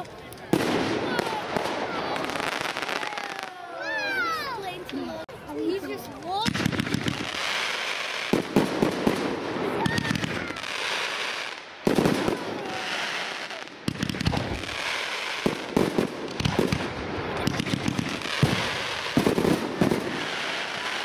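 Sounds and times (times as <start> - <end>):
firework crackling hiss: 6.3 - 21.0.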